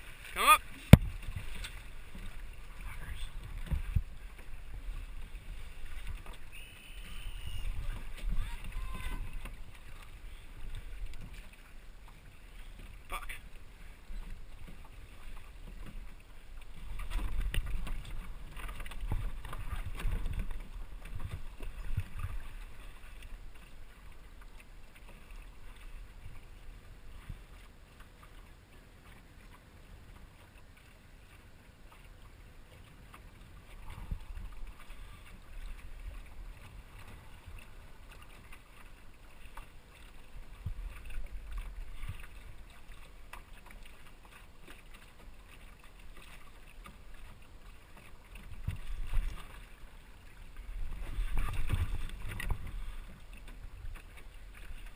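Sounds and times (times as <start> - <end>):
water washing along hull: 0.0 - 54.9
wind buffeting microphone: 3.0 - 6.3.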